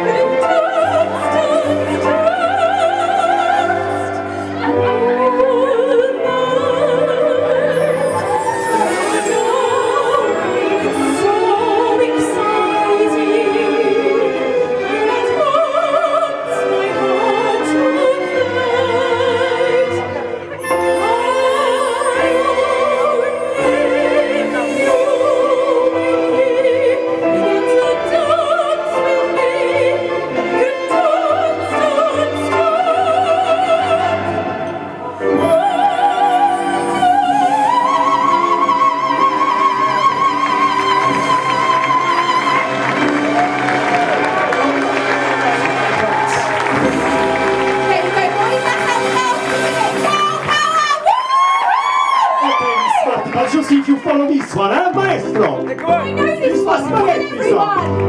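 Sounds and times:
woman singing operatic soprano: 0:00.0 - 0:44.3
recorded orchestral backing track: 0:00.0 - 0:58.0.

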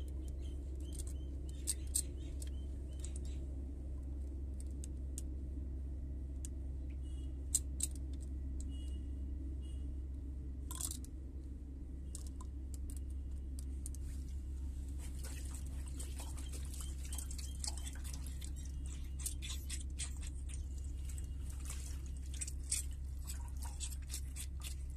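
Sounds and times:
steady low hum: 0:00.0 - 0:24.9
liquid splashing and sloshing: 0:14.0 - 0:24.9.

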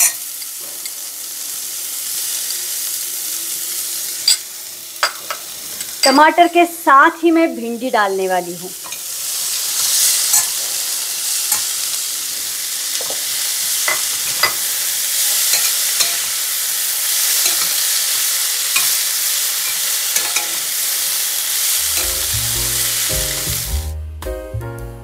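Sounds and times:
vegetables sizzling in a pan: 0:00.0 - 0:23.9
background music: 0:21.8 - 0:25.0.

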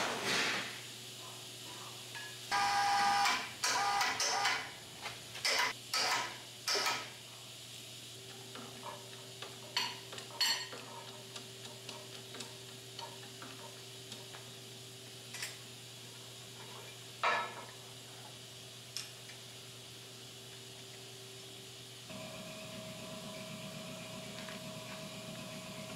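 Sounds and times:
steady low hum: 0:07.2 - 0:25.9.

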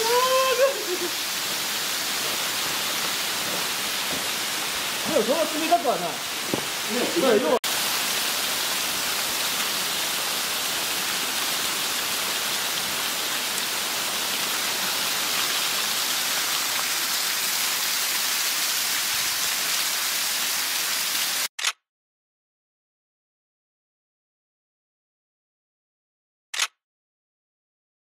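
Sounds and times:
waterfall rushing: 0:00.0 - 0:21.5.

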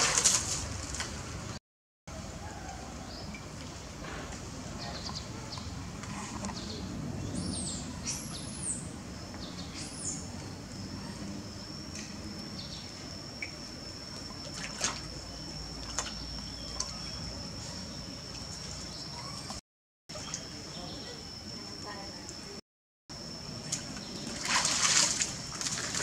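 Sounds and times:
water dripping and splashing: 0:14.2 - 0:15.1, 0:23.6 - 0:26.0.

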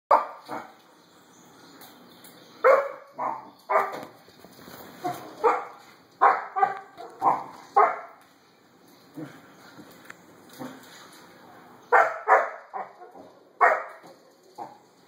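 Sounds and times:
puppy barking: 0:00.1 - 0:00.7, 0:02.6 - 0:04.1, 0:05.0 - 0:08.2, 0:11.9 - 0:14.8.

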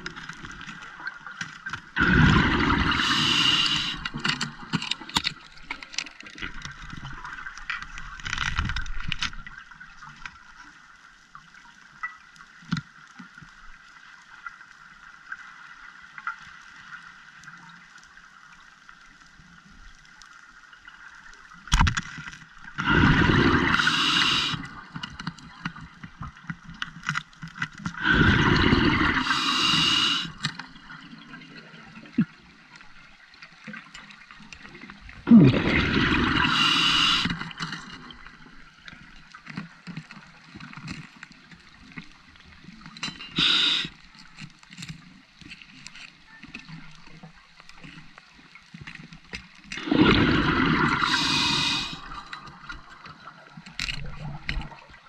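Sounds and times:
diver's exhaled bubbles gurgling: 0:01.9 - 0:04.7, 0:22.7 - 0:25.6, 0:27.9 - 0:32.4, 0:34.7 - 0:38.8, 0:49.8 - 0:53.4
faint underwater hiss: 0:02.0 - 0:04.6, 0:22.8 - 0:25.4, 0:27.9 - 0:31.0, 0:35.1 - 0:38.6, 0:42.4 - 0:44.4, 0:49.7 - 0:53.3.

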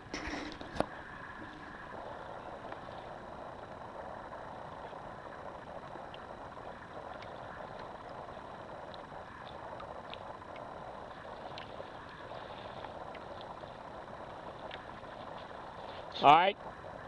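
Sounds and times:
outdoor background noise over water: 0:00.0 - 0:17.0
faint ticks: 0:02.6 - 0:03.8, 0:05.6 - 0:16.1.

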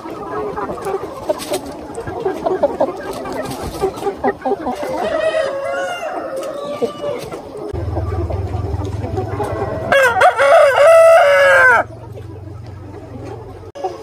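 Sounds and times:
chickens clucking: 0:00.0 - 0:14.0
rooster crowing: 0:04.9 - 0:07.2, 0:09.4 - 0:11.9.

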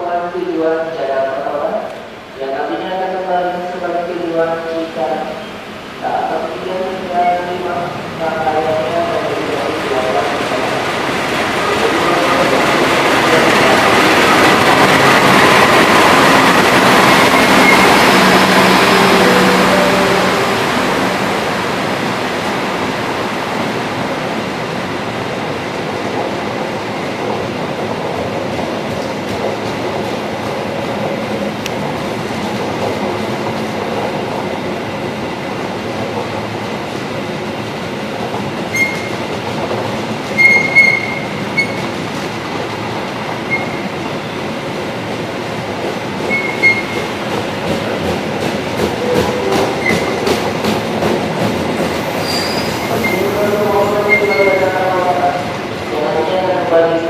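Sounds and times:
train wheels rolling on rails: 0:03.8 - 0:57.0
locomotive engine passing: 0:08.8 - 0:23.2
high wheel squeals: 0:17.1 - 0:20.1, 0:38.7 - 0:39.1, 0:40.4 - 0:41.8, 0:43.5 - 0:43.8, 0:46.3 - 0:47.1, 0:52.2 - 0:53.3, 0:54.0 - 0:54.6.

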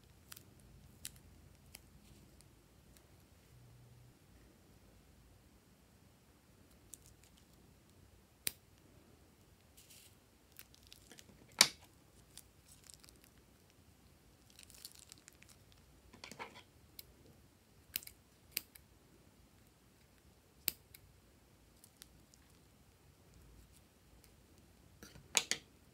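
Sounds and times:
plastic bag crinkling: 0:12.2 - 0:13.4, 0:14.4 - 0:15.8.

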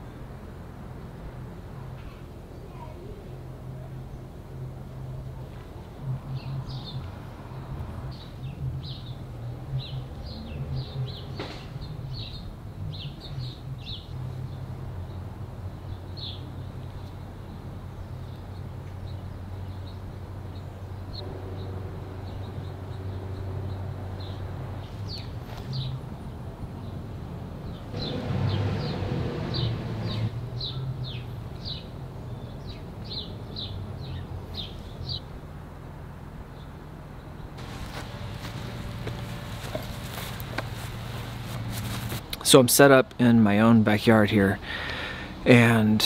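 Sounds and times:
small birds chirping: 0:09.8 - 0:26.1, 0:30.6 - 0:35.4, 0:36.5 - 0:42.4
steady low rumble: 0:37.6 - 0:42.4.

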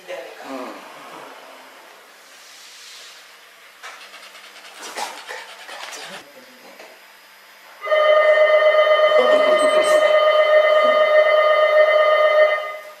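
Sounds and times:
electric bell ringing: 0:07.8 - 0:12.9.

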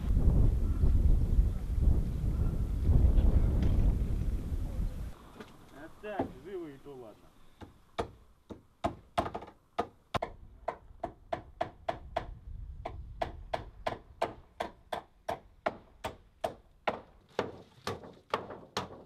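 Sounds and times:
hammer nailing wooden boards: 0:07.6 - 0:19.0.

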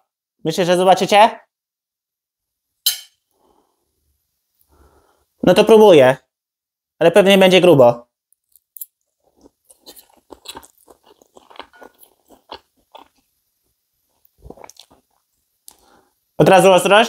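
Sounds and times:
person chewing wetly: 0:08.4 - 0:13.3, 0:14.1 - 0:15.9.

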